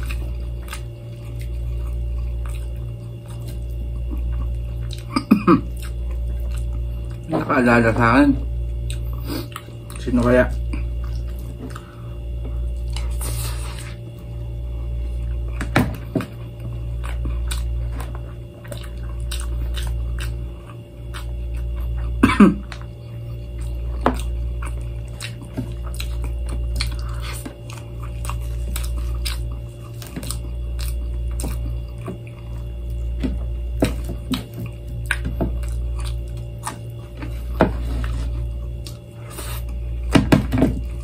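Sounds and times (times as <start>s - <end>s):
person chewing food: 0.0s - 7.3s, 8.4s - 41.0s
low hum: 0.0s - 41.0s.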